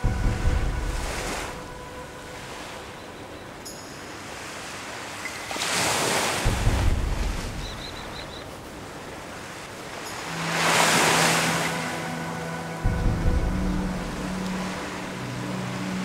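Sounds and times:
wind rumble on microphone: 0.0s - 4.2s, 5.7s - 9.8s, 11.6s - 16.0s
sea waves washing on shore: 0.0s - 16.0s.

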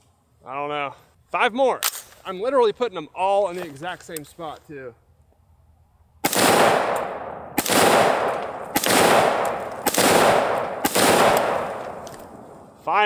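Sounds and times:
rifle shots with long echo: 6.2s - 12.8s.

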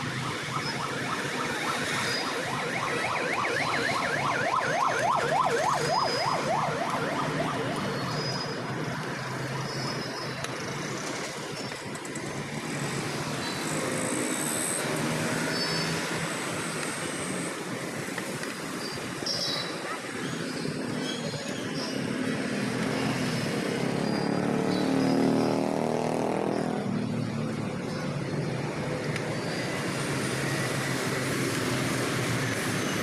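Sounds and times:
fast-warbling siren: 0.0s - 8.7s
street noise: 0.0s - 33.0s.

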